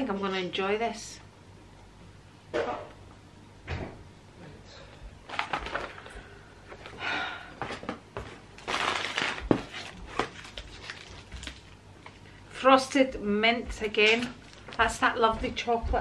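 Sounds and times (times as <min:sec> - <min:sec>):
packaging rustling and crinkling: 0:05.2 - 0:07.0, 0:07.6 - 0:12.3, 0:14.0 - 0:14.9.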